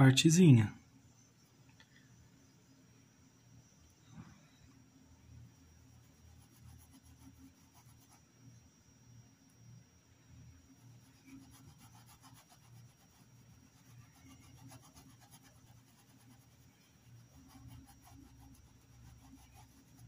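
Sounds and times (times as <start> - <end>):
low steady hum: 0.0 - 20.0
paintbrush scratching on cloth: 5.8 - 8.3, 10.7 - 20.0.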